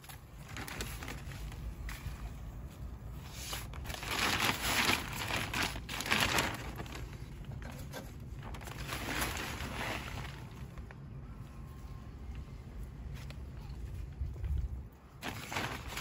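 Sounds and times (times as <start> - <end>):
plastic bag crinkling: 0.0 - 1.9, 3.6 - 11.0, 15.2 - 16.0.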